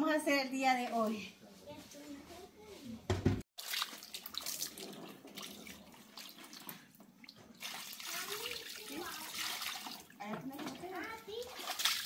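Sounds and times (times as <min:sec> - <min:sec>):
water splashing over stone: 0:07.6 - 0:12.0.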